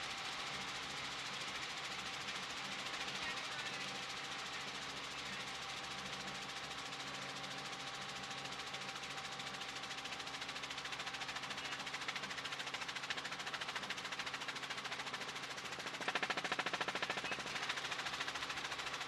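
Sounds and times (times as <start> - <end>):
helicopter engine hum: 0.0 - 19.0
helicopter rotor chopping: 0.0 - 19.0.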